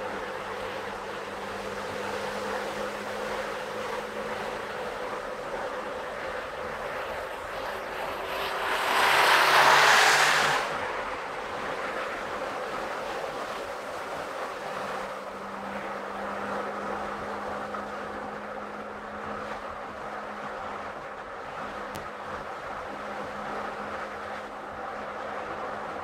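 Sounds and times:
car road and tyre noise: 0.0 - 26.0
vehicle rushing past: 6.3 - 18.1.

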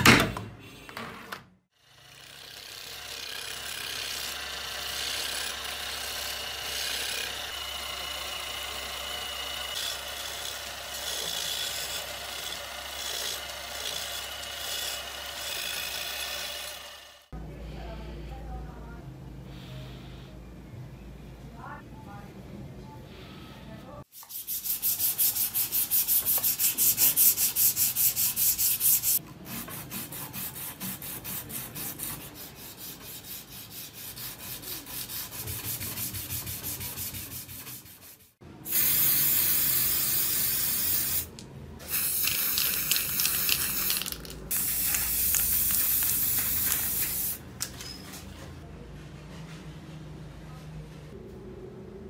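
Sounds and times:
sandpaper rubbing on wood: 24.1 - 38.4.

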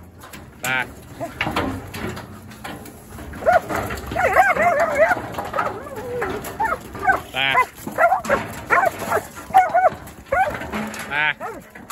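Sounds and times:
dog barking: 3.4 - 10.6, 11.4 - 11.6.

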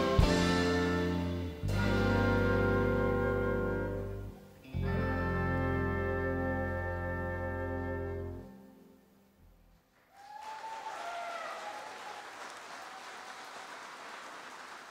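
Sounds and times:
wind band chord: 0.0 - 9.1
audience applause: 10.0 - 14.9.

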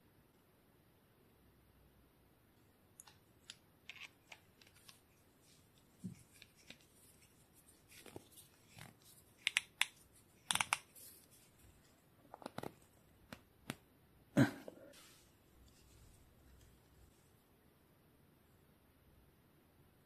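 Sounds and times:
small clicks and taps of tools: 7.9 - 11.2.

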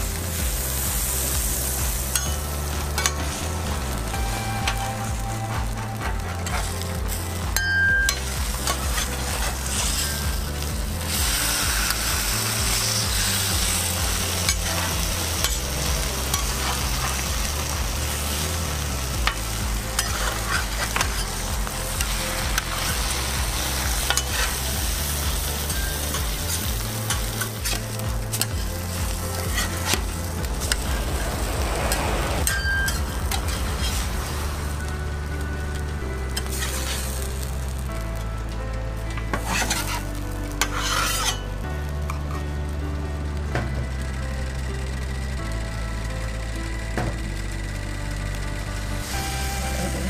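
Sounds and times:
food sizzling in a pan: 0.0 - 38.0, 39.3 - 45.4, 47.6 - 50.0
utensil scraping a pan: 29.3 - 30.9, 39.4 - 41.5.

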